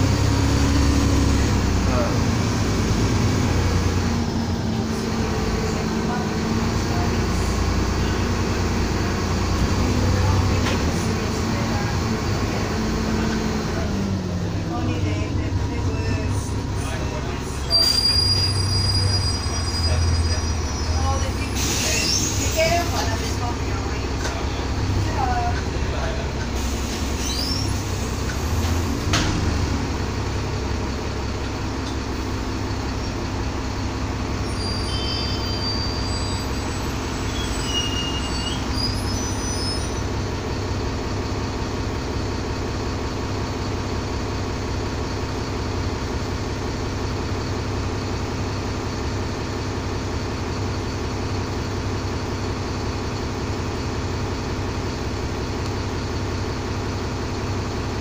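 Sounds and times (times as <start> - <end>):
bus diesel engine running: 0.0 - 58.0
brief high squeaks: 17.7 - 21.0, 27.1 - 27.8, 34.4 - 40.1.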